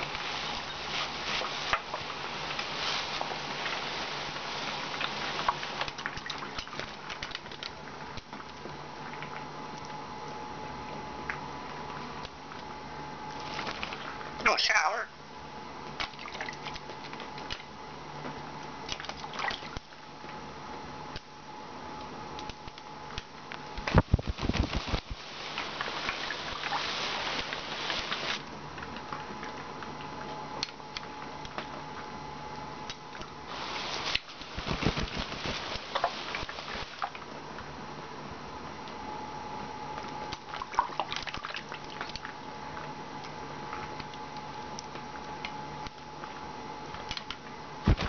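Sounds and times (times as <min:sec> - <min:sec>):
parrot splashing water: 0:33.5 - 0:37.3.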